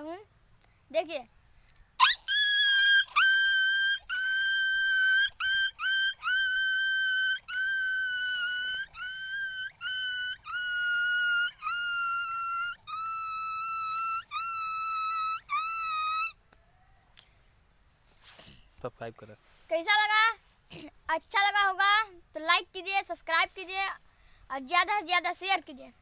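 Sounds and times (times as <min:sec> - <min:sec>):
boy whining like a dog: 0:02.0 - 0:16.4.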